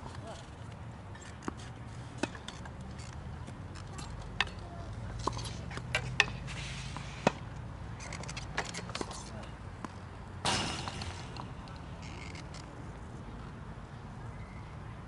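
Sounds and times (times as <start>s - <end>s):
tennis ball hit by rackets: 10.4s - 12.0s.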